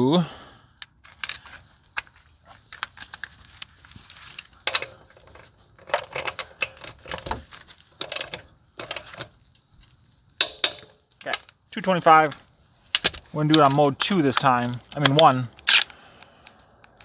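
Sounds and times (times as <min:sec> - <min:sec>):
metal hand tools clicking and rattling: 0:10.4 - 0:11.4.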